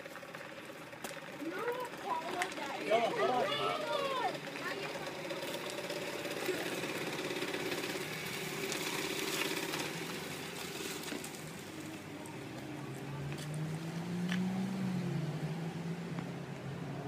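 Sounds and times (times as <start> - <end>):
car driving past: 6.4 - 17.0.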